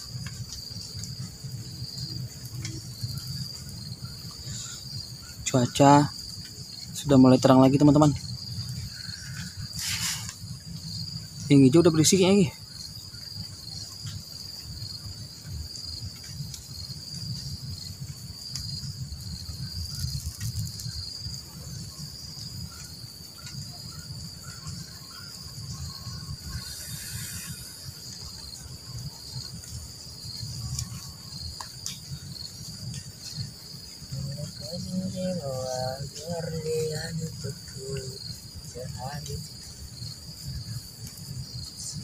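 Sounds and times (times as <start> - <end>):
insects trilling: 0.0 - 42.0
brief hiss: 9.8 - 10.4, 26.6 - 27.8.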